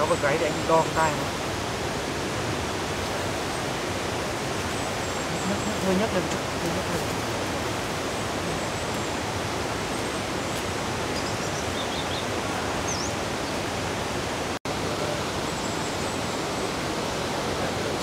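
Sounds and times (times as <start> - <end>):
rushing outdoor noise: 0.0 - 18.0
faint high bird chirps: 11.1 - 13.2.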